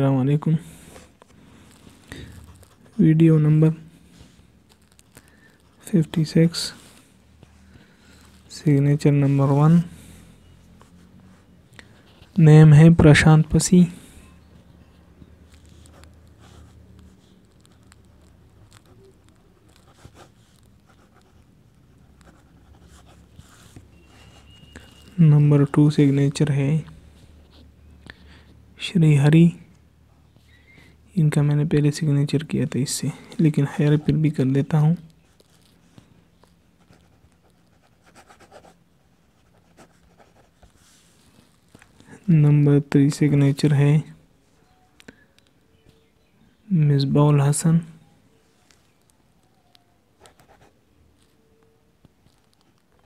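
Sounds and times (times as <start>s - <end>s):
pen scratching on paper: 15.5s - 24.7s, 36.8s - 40.9s.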